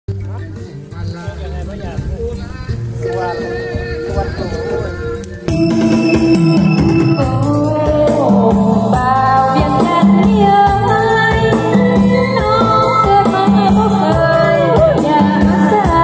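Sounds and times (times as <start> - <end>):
electronic keyboard: 1.6 - 16.0
steady beat: 3.0 - 16.0
woman singing into a microphone: 7.2 - 16.0.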